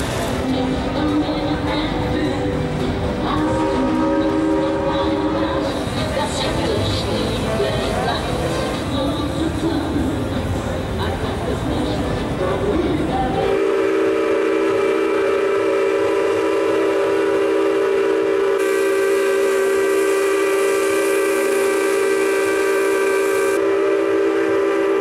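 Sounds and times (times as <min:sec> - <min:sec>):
steam whistle chord blast: 0:03.4 - 0:05.8, 0:13.5 - 0:25.0
steam hiss: 0:13.6 - 0:24.2.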